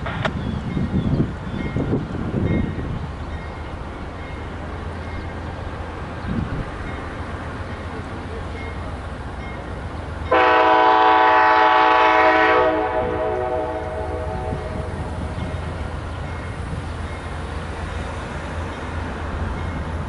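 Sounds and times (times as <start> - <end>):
low train rumble: 0.0 - 20.0
train horn blast: 10.3 - 15.1.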